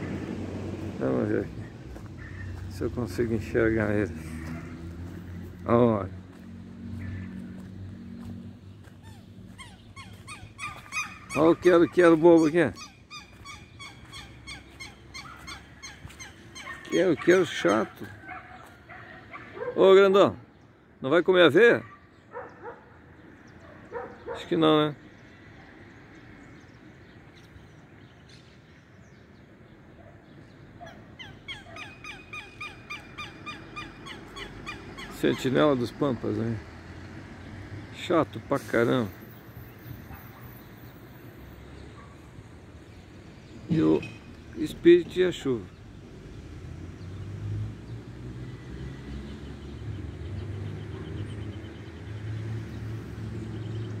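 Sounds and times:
bird alarm calls: 0:02.2 - 0:02.8, 0:08.8 - 0:19.7, 0:30.8 - 0:35.6.

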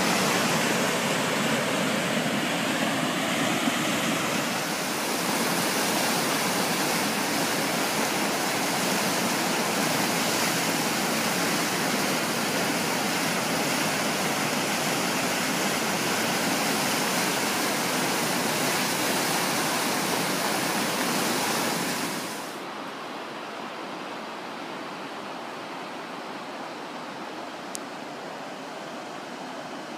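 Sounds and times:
floodwater rushing: 0:00.0 - 0:22.7.

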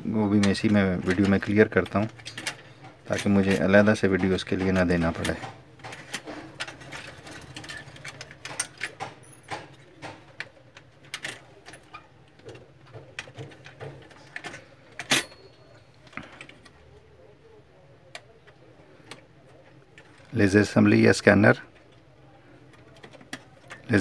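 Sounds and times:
clicks and taps of printer parts: 0:02.3 - 0:06.8, 0:08.2 - 0:11.4, 0:12.3 - 0:15.1.

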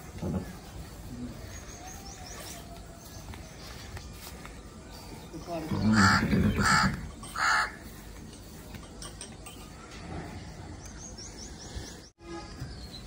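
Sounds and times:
harsh animal calls: 0:05.6 - 0:07.8.

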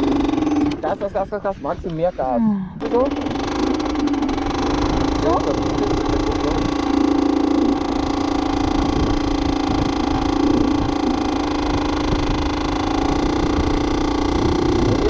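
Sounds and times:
moped engine droning: 0:00.0 - 0:15.0
wind rumbling on microphone: 0:00.0 - 0:15.0.

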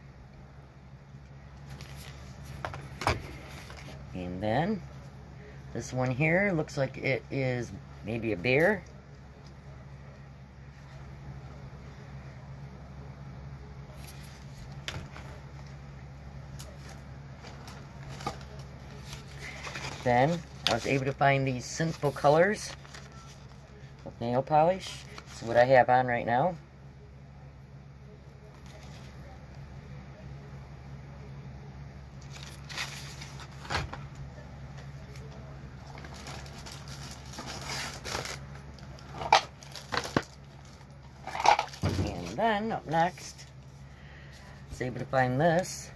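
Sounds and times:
packaged items clicking and rustling: 0:16.6 - 0:21.2, 0:35.8 - 0:42.3.

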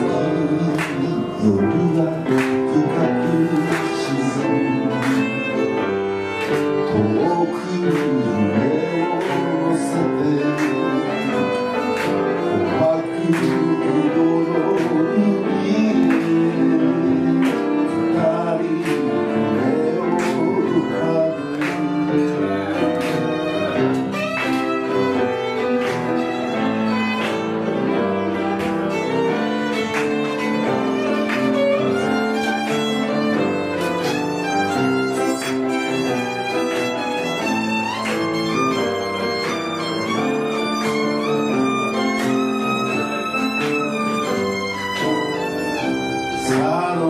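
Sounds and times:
piano accompaniment: 0:00.0 - 0:47.0
violin melody: 0:00.0 - 0:47.0.

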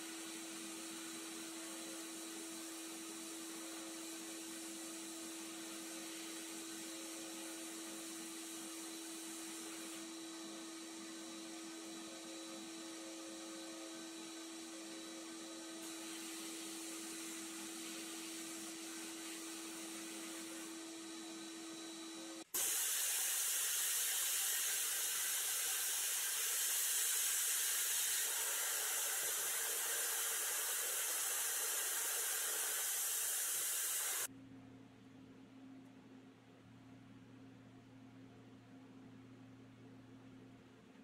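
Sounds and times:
blast cabinet humming and hissing: 0:00.0 - 0:34.3
spray paint hissing: 0:22.5 - 0:34.3.

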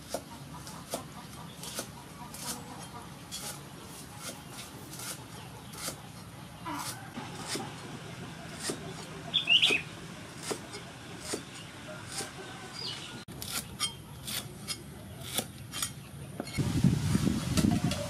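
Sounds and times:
blade scraping on board: 0:00.0 - 0:09.1
bird calling: 0:08.2 - 0:13.3.

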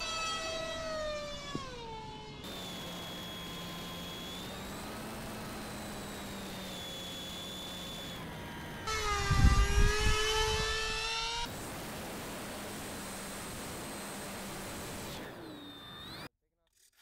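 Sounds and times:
electric model plane whining: 0:00.0 - 0:16.3
wind buffeting microphone: 0:09.1 - 0:11.0.

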